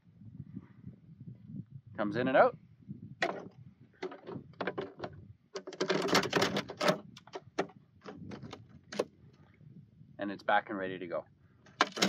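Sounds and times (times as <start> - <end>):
metal screen sliding and clattering: 5.6 - 7.0, 11.7 - 12.0.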